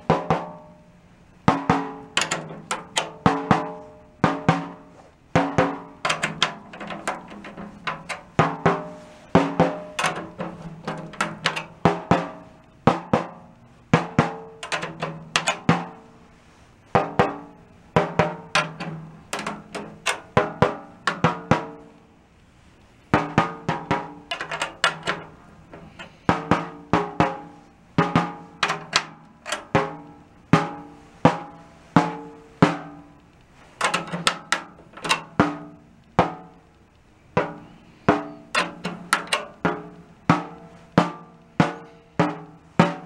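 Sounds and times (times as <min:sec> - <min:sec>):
snare drum head tapped by hand: 0:00.0 - 0:00.7, 0:01.5 - 0:16.0, 0:16.9 - 0:21.9, 0:23.2 - 0:33.1, 0:33.8 - 0:36.6, 0:37.4 - 0:43.0.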